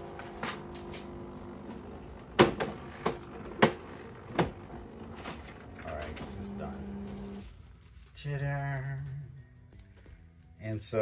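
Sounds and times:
stencil machine humming: 0.0s - 7.4s.

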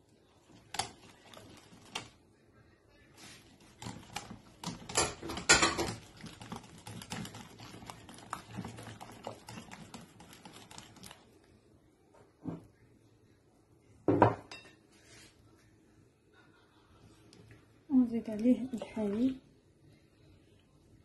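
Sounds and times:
whisk clicking against glass bowl: 3.8s - 11.2s.

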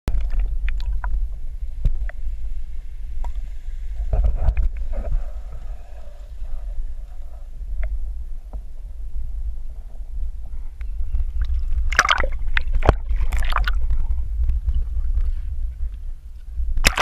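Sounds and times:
water rumbling underwater: 0.1s - 17.0s
hiss: 2.2s - 7.5s.

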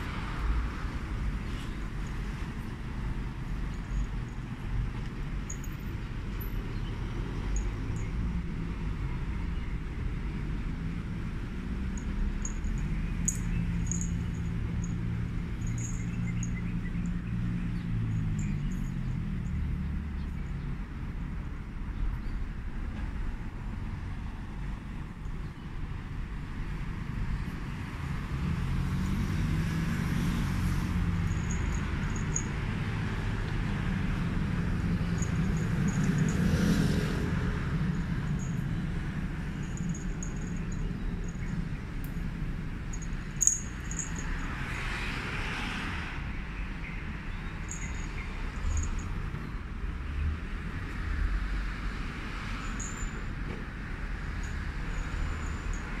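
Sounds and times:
road traffic rumble: 0.0s - 56.0s
vehicle passing: 10.5s - 21.2s, 26.9s - 46.5s.

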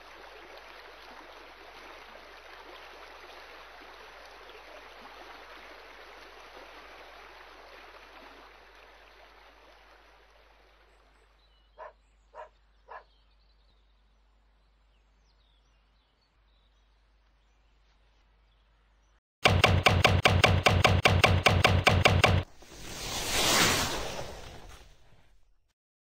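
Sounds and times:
dog barking: 11.8s - 13.1s.

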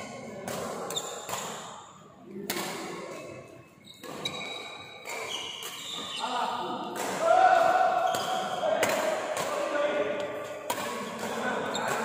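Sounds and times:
racket hitting shuttlecock: 0.4s - 1.8s, 2.4s - 3.4s, 4.0s - 6.2s, 6.8s - 12.0s
shoe squeaks on court floor: 0.9s - 1.4s, 3.8s - 6.4s, 11.6s - 12.0s.

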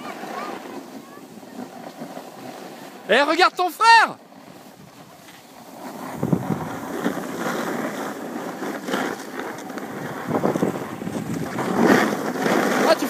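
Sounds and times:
skis scraping over snow: 0.0s - 13.0s
wind rushing over microphone: 4.3s - 13.0s.

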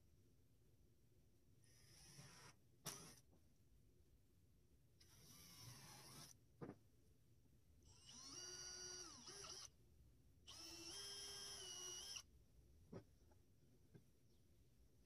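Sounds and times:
cordless drill motor whine: 5.0s - 6.4s, 7.9s - 9.7s, 10.5s - 12.3s.

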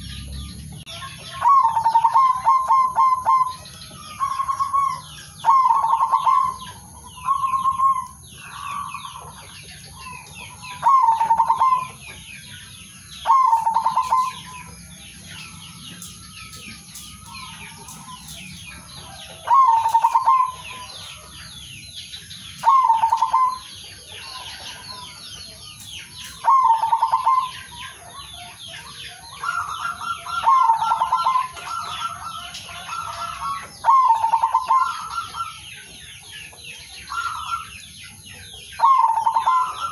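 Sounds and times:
dove cooing: 0.0s - 12.3s, 13.2s - 21.7s, 22.5s - 25.2s, 26.2s - 39.9s
small birds chirping: 0.0s - 39.9s
higher-pitched dove call: 0.9s - 8.9s, 10.8s - 12.0s, 19.4s - 20.9s, 22.6s - 23.7s, 29.4s - 35.6s.

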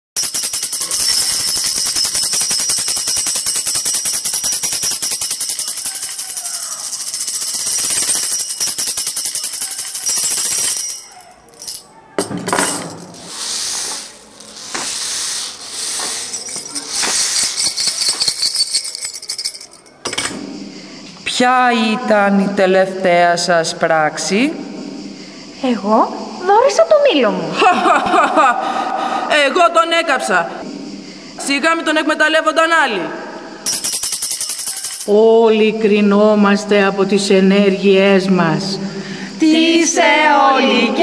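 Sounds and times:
shaken jingling percussion music: 0.2s - 11.9s, 15.4s - 20.1s, 33.6s - 35.2s.

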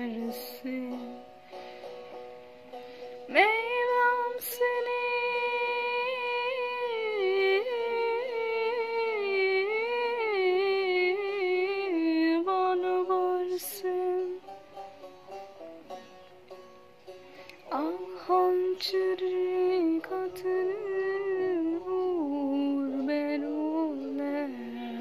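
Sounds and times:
woman singing without words: 0.0s - 1.2s, 3.3s - 14.4s, 17.7s - 25.0s.

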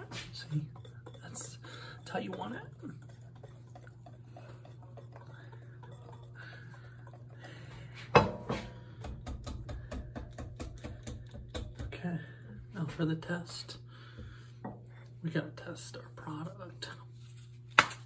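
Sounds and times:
whisk beating sauce in bowl: 0.0s - 11.9s
low steady hum: 0.0s - 18.0s.

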